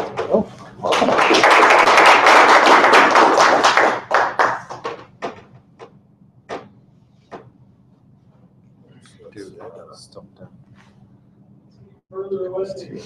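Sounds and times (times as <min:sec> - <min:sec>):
audience applauding: 0:00.8 - 0:05.2.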